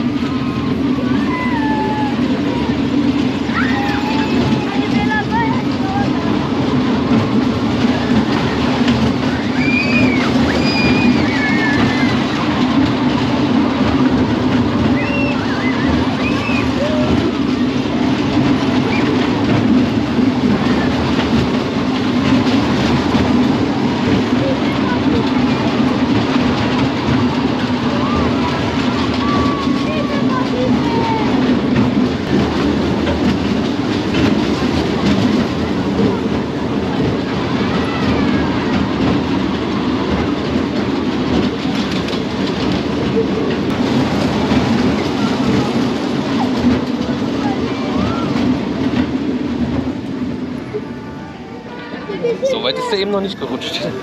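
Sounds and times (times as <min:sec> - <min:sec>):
ride train rumbling on track: 0:00.0 - 0:54.0.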